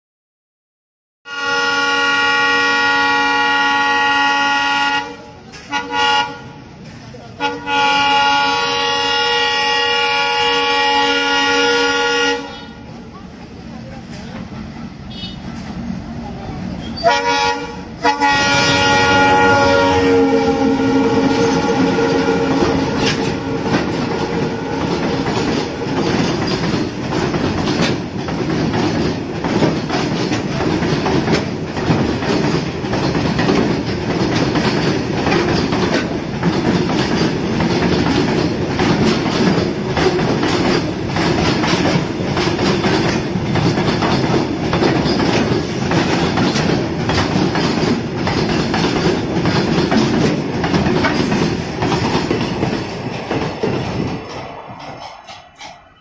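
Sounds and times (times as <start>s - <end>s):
locomotive horn: 1.3s - 6.6s, 7.4s - 12.9s, 15.1s - 15.6s, 16.9s - 25.0s
freight wagons rumbling: 17.9s - 56.0s
steel wheels clacking over rail joints: 18.2s - 56.0s.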